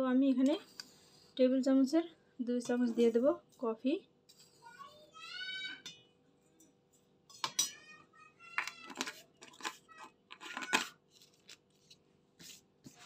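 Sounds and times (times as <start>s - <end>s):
metal spoon scraping glass jar: 8.6s - 10.9s.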